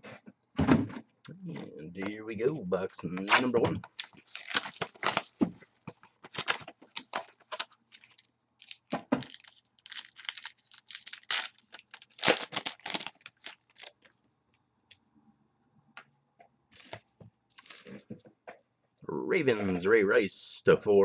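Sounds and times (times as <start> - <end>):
cardboard and wrapper ripping: 3.2 - 14.1, 16.8 - 18.0.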